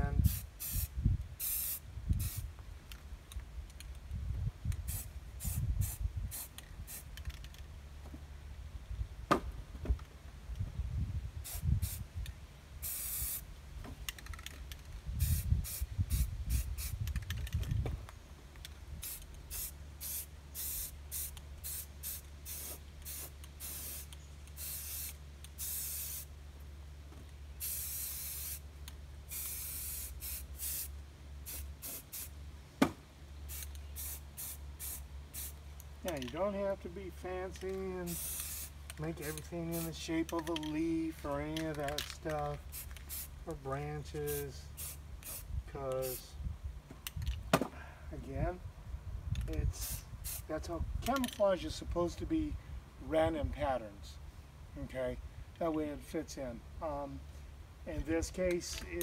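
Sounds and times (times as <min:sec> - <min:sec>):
spray paint can hissing: 0:00.2 - 0:02.5, 0:04.8 - 0:07.4, 0:11.4 - 0:12.0, 0:12.8 - 0:13.5, 0:15.2 - 0:17.5, 0:19.0 - 0:26.3, 0:27.6 - 0:28.6, 0:29.3 - 0:32.3, 0:33.5 - 0:35.6, 0:38.0 - 0:40.1, 0:42.2 - 0:43.3, 0:44.3 - 0:46.3, 0:49.8 - 0:50.6.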